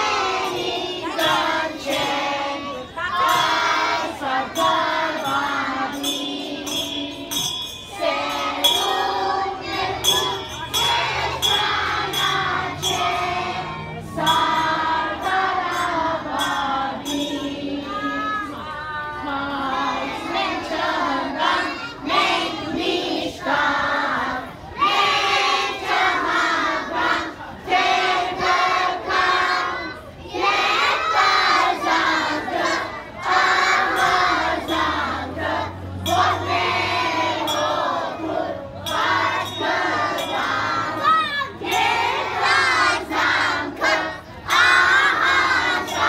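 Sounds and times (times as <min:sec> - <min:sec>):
children singing in unison: 0:00.0 - 0:46.0.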